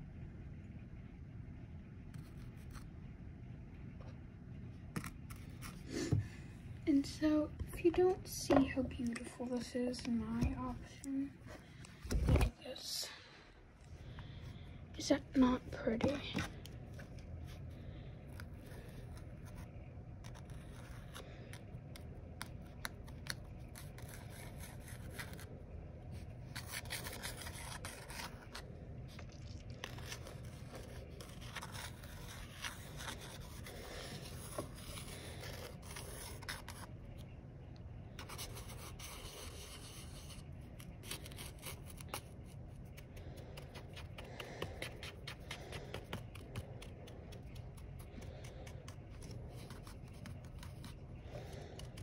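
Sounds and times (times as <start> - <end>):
pencil scratching through sand: 23.6 - 25.5, 26.5 - 28.6, 29.2 - 36.9, 38.2 - 40.4, 43.6 - 52.0.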